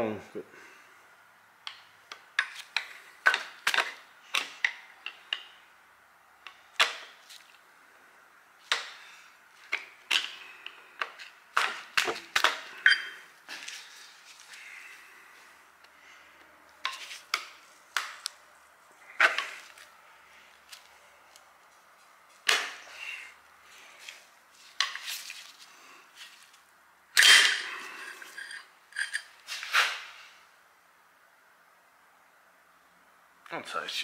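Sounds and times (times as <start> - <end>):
screwdriver scraping metal: 27.2 - 29.3.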